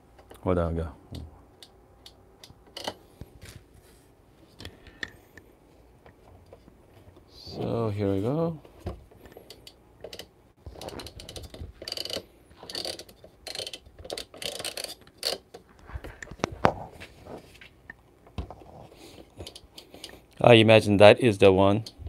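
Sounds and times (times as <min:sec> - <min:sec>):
coffee grinder collar ratcheting: 0:09.6 - 0:15.4.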